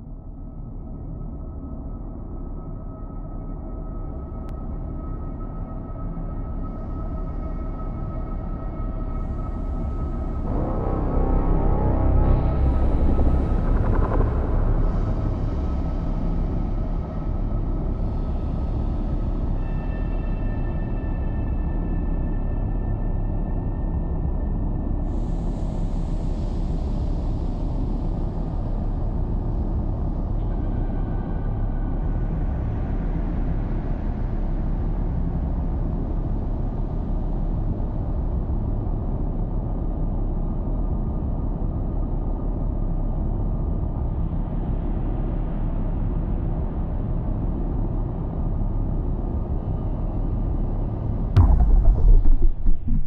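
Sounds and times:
deep rumbling ambient drone: 0.0s - 53.0s.

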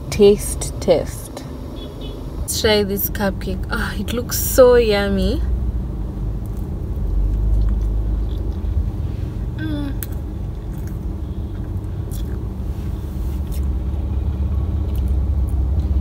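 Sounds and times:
person biting and chewing: 6.4s - 8.7s, 10.0s - 12.5s, 13.4s - 13.8s
person humming: 9.6s - 10.1s.

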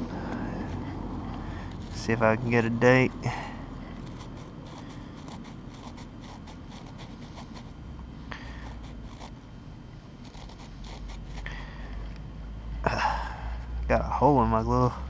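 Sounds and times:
fingers scraping dirt off coin: 4.0s - 7.8s, 8.5s - 9.4s, 10.2s - 11.5s.

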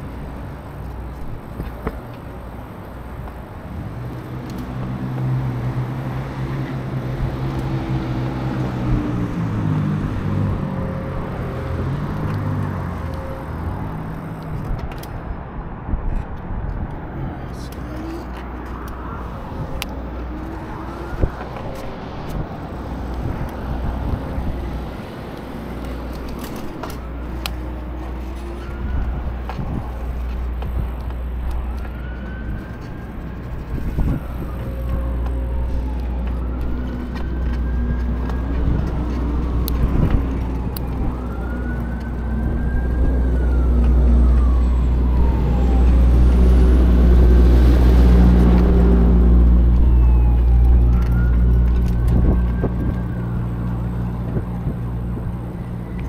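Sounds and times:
wind rumble on microphone: 0.0s - 56.0s
siren wailing: 7.8s - 14.2s, 18.8s - 56.0s.

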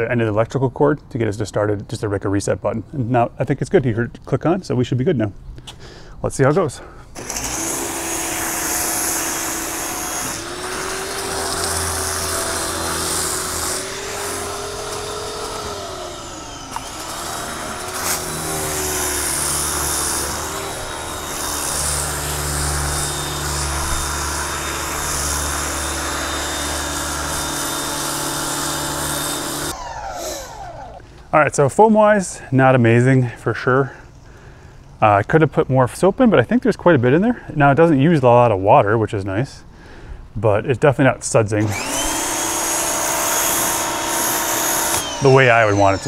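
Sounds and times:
pressure washer motor humming: 7.2s - 31.2s, 41.6s - 46.0s.

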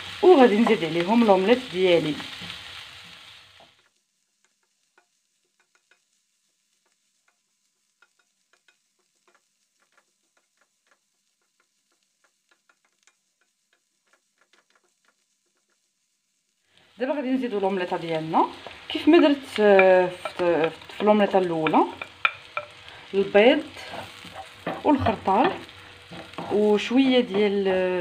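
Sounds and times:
frying sizzle: 0.0s - 28.0s
spatula scraping pan: 6.7s - 16.0s, 17.5s - 28.0s.

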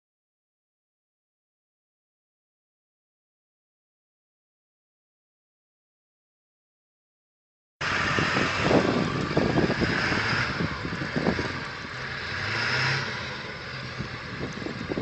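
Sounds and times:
truck engine: 7.8s - 15.0s
tyres on snow: 7.8s - 15.0s.

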